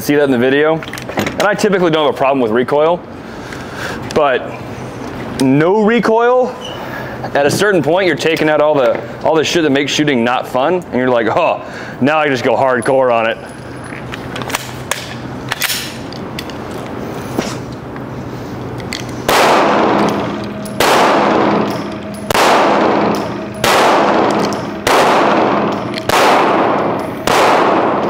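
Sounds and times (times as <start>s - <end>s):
gun handling clicks: 14.0s - 17.0s, 18.7s - 27.8s
pistol shots echoing: 19.3s - 28.0s.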